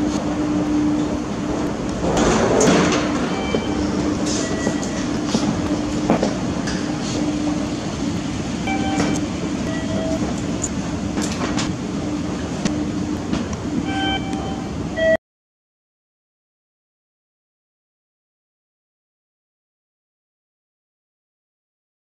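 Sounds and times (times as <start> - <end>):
train rumble and hum: 0.0 - 15.2.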